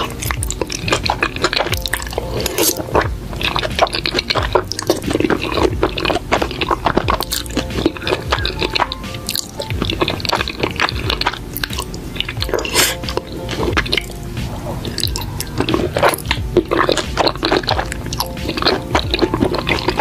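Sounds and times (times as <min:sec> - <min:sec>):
background music: 0:00.0 - 0:20.0
wet slurping and chewing: 0:00.0 - 0:20.0.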